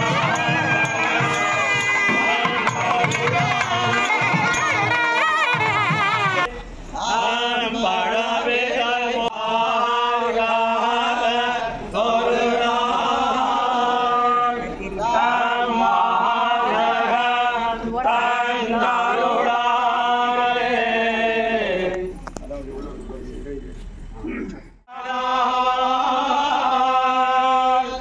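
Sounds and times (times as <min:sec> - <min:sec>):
priests chanting in unison: 0:00.0 - 0:04.7, 0:07.0 - 0:22.1, 0:24.8 - 0:28.0.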